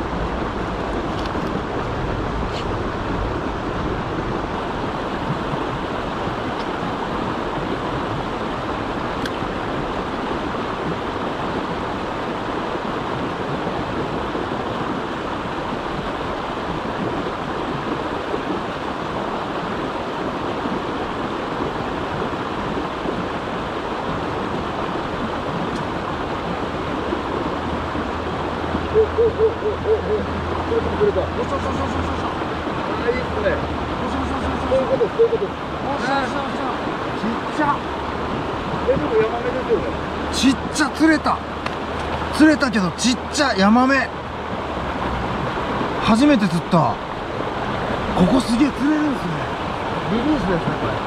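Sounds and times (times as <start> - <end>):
stream rushing over rocks: 0.0 - 51.0.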